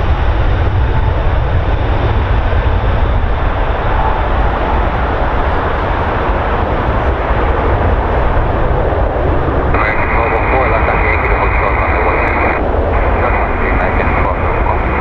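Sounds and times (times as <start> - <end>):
jet engines at takeoff: 0.0 - 15.0.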